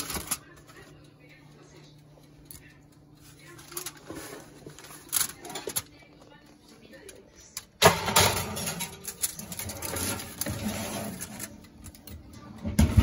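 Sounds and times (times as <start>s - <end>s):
foil crinkling: 0.0s - 1.0s, 3.2s - 6.0s
dish scraping on wire rack: 7.8s - 11.7s.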